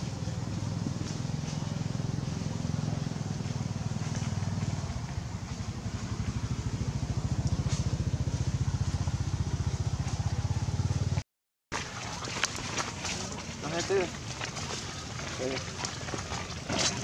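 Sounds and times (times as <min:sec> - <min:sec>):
small engine idling: 0:00.0 - 0:11.2, 0:12.1 - 0:17.0.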